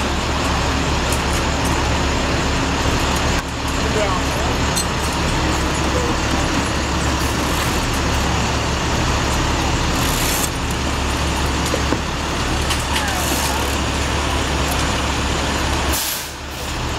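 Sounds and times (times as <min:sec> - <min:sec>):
truck engine running: 0:00.0 - 0:16.9
brief hiss: 0:15.9 - 0:16.4.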